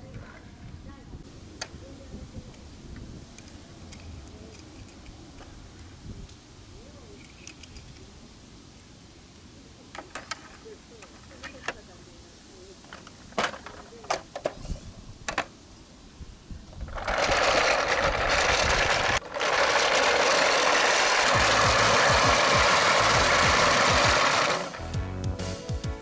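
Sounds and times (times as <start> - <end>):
small motor whirring: 16.9 - 24.8
music: 21.4 - 26.0.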